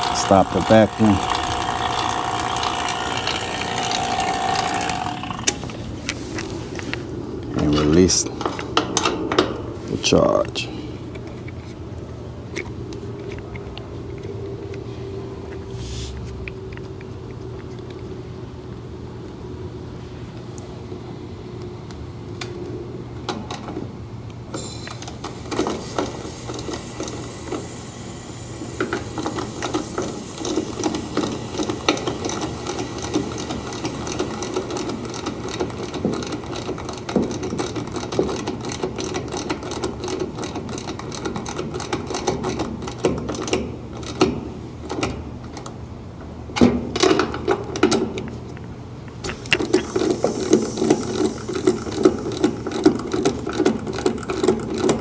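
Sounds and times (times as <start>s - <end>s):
ratchet wrench clicking: 0.0s - 5.6s
steady low hum: 0.0s - 38.9s.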